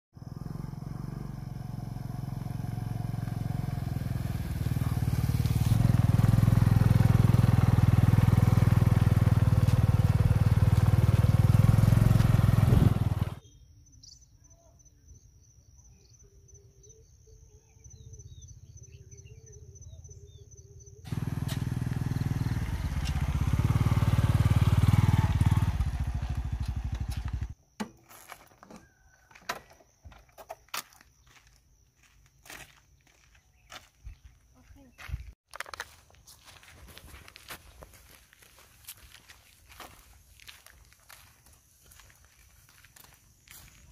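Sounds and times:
motorbike engine running: 0.2 - 13.4, 21.1 - 27.6.

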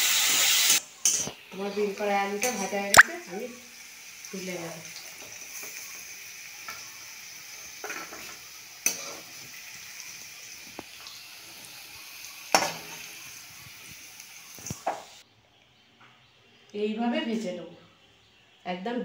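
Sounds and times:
food sizzling in oil: 0.0 - 15.2
metal spatula scraping a pan: 7.8 - 9.4.

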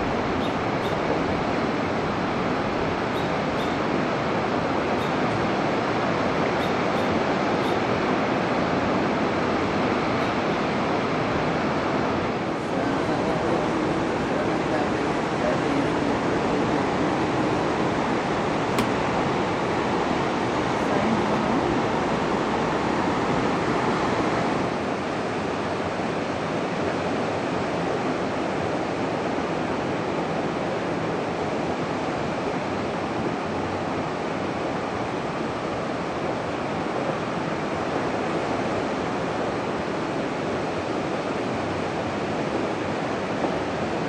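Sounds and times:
ocean waves breaking: 0.0 - 26.0.

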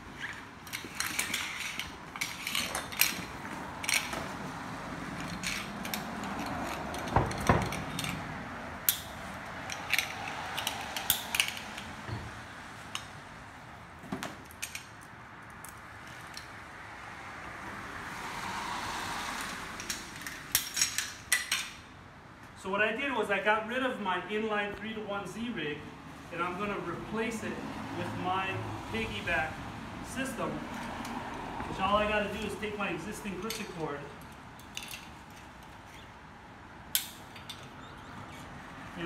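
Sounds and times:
rope rustling: 0.0 - 12.0
metal carabiners clinking on concrete: 0.1 - 4.4, 5.1 - 13.2, 14.2 - 16.5, 19.4 - 21.9, 28.9 - 36.1, 36.9 - 39.0.

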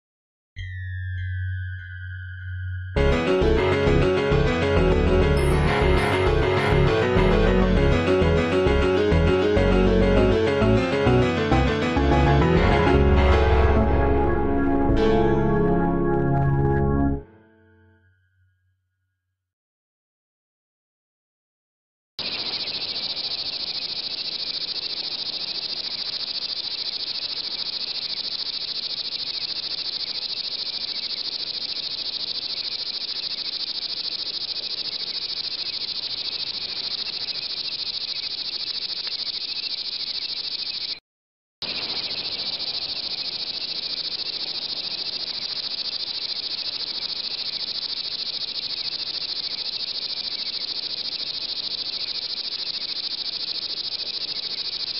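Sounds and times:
insects chorus: 22.2 - 41.0, 41.6 - 54.9.

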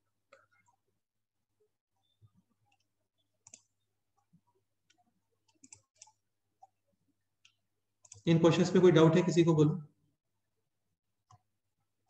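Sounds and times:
computer mouse clicks: 2.6 - 6.8, 7.4 - 8.2, 11.2 - 11.5.

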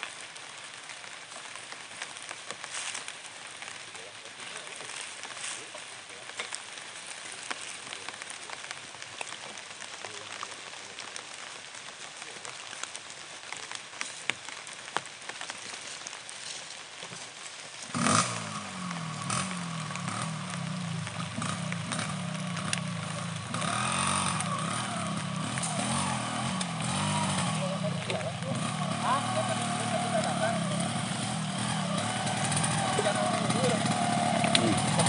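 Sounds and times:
small ticks: 17.8 - 28.9
motorcycle engine revving: 17.8 - 35.0.

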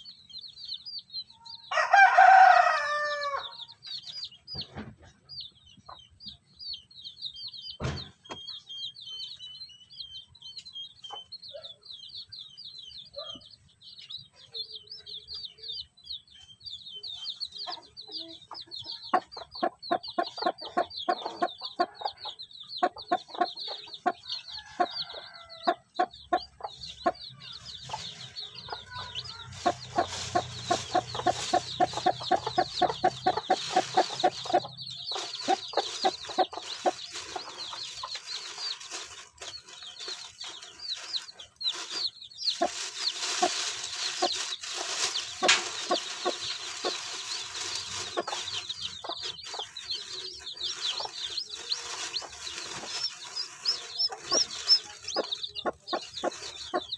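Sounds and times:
chicks peeping: 0.0 - 56.9
hen clucking: 17.2 - 56.9.

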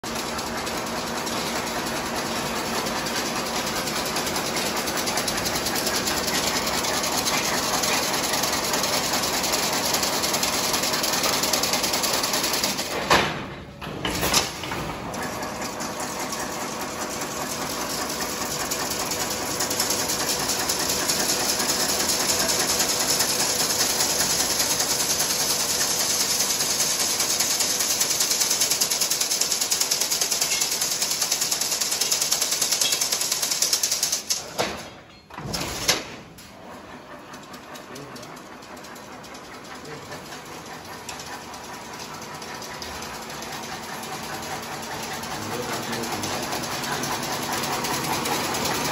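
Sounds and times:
fence weaving machine clatter: 0.1 - 13.4, 14.0 - 48.9.

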